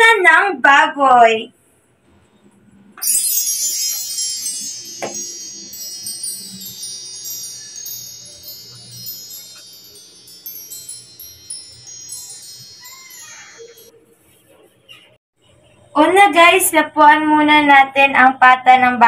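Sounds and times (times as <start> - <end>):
wind chimes tinkling: 3.0 - 14.0.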